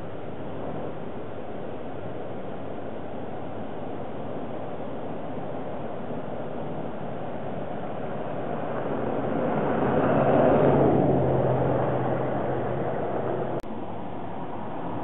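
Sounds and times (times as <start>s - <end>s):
low engine hum: 0.0s - 15.0s
vehicle passing by: 8.1s - 13.6s.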